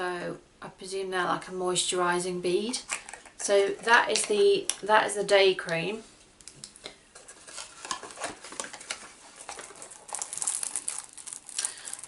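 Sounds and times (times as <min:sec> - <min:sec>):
packaging crinkling: 0:07.1 - 0:12.0.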